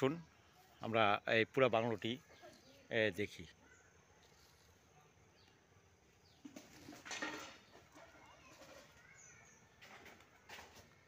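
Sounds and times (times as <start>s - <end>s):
faint bird calls: 3.5s - 11.0s.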